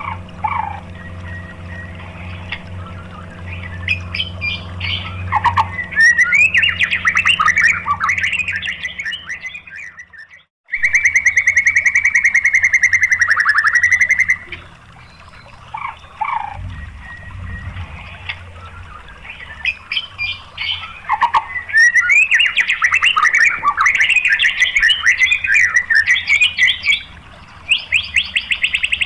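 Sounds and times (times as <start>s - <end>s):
low steady hum: 0.0s - 10.2s, 10.8s - 28.9s
bird whistles and chirps: 0.5s - 29.0s.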